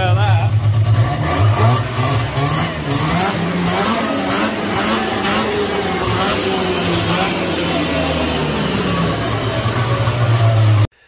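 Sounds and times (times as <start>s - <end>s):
snowmobile engine revving: 0.0s - 10.9s.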